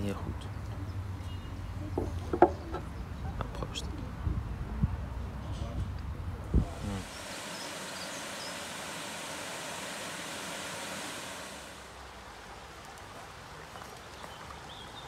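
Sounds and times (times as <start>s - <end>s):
small waterfall rushing and splashing: 6.7s - 15.0s
shallow water flowing over rocks: 6.8s - 15.0s.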